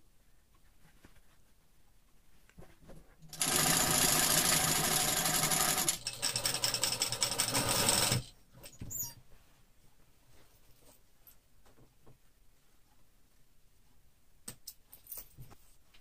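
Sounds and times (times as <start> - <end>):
sewing machine stitching: 3.3 - 8.3.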